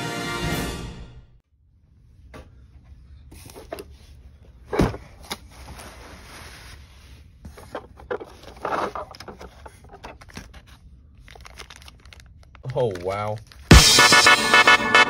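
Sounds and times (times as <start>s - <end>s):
tissue paper rustling: 4.8s - 13.7s
plastic bags crinkling: 7.6s - 13.7s.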